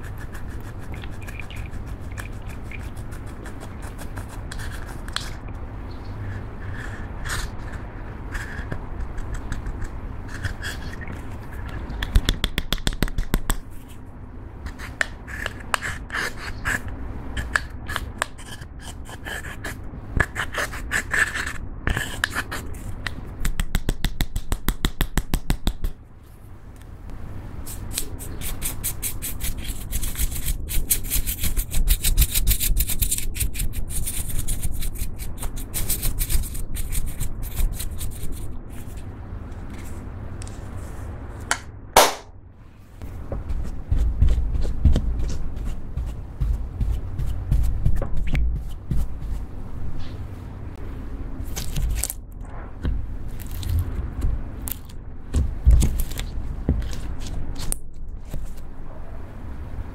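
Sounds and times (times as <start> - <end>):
spatula scraping eyeshadow powder: 0.0 - 5.4, 6.2 - 11.9, 14.6 - 22.9, 27.7 - 39.0.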